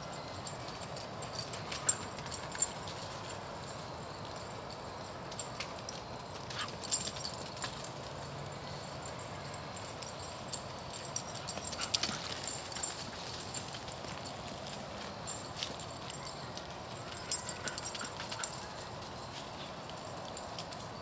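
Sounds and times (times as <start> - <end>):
dog running on dry leaves: 11.3 - 19.9.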